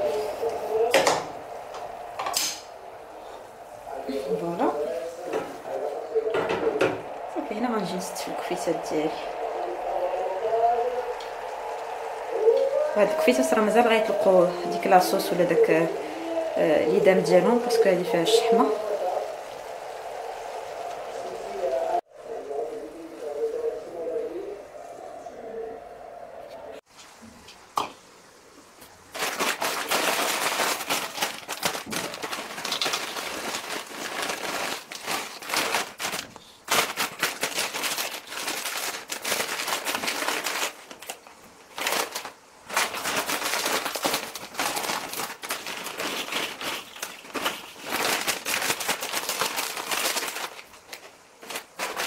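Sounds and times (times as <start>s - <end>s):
crisps pouring into bowls: 29.1s - 52.0s
foil bags crinkling: 29.1s - 52.0s.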